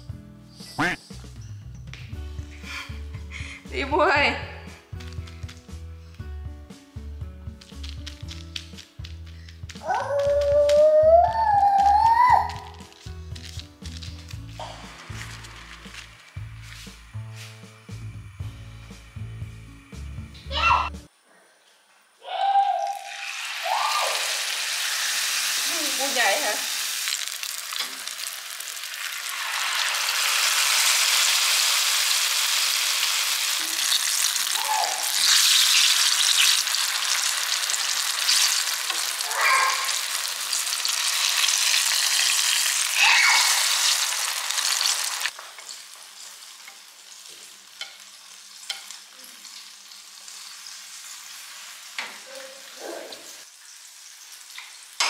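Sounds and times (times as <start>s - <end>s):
chopsticks turning food: 7.5s - 17.0s
batter sizzling in hot oil: 11.8s - 20.3s, 22.8s - 55.0s.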